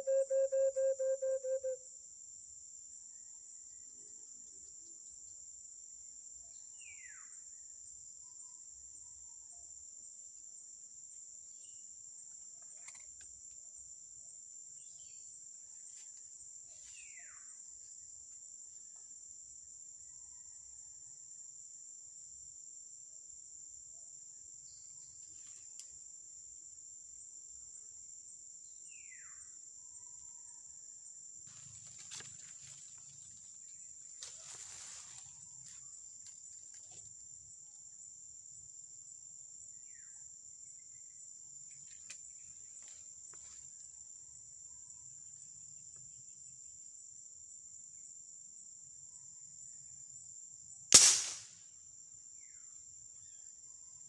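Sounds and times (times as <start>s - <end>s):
whistled bird calls: 0.0s - 1.8s
high-pitched insect chorus: 0.0s - 54.0s.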